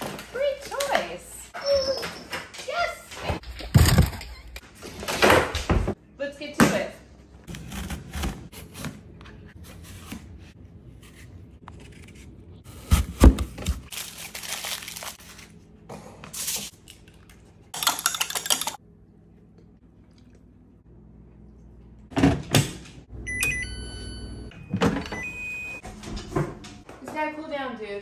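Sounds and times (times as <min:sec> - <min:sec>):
knife cutting apples: 0:07.5 - 0:13.4
aluminium foil crinkling: 0:13.8 - 0:15.6.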